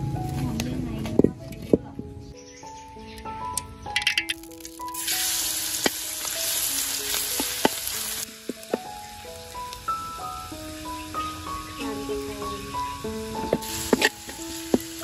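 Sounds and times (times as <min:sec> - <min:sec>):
cooking utensil clicks and knocks: 0:03.6 - 0:04.4, 0:13.4 - 0:14.9
food sizzling in hot oil: 0:03.9 - 0:15.0.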